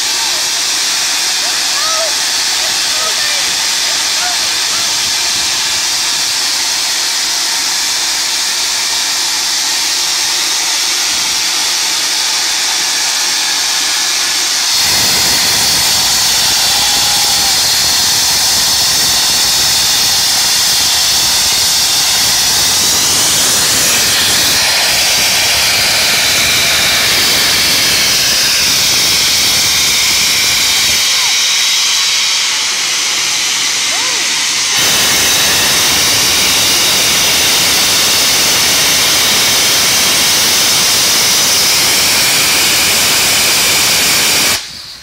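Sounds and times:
steam hissing from locomotive: 0:00.0 - 0:45.0.

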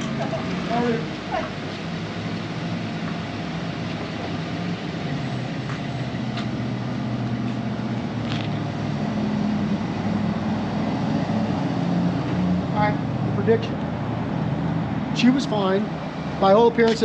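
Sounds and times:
vehicle engine humming: 0:00.0 - 0:17.0.

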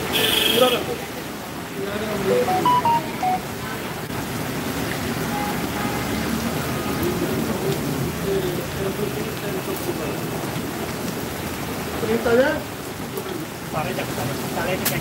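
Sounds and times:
heavy rain on a wet street: 0:00.0 - 0:15.0.

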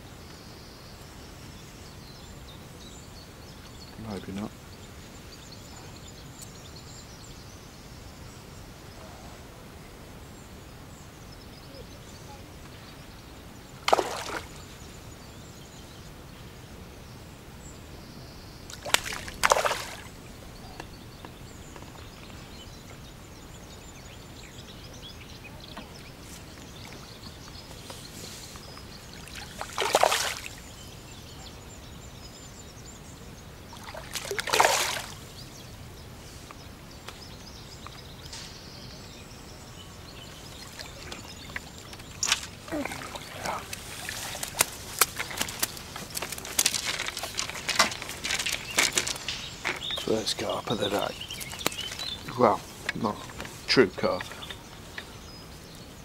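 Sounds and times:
faint outdoor hiss: 0:00.0 - 0:56.0
fish splashing at surface: 0:13.8 - 0:14.5, 0:18.8 - 0:20.1, 0:29.4 - 0:30.5, 0:33.9 - 0:35.2.

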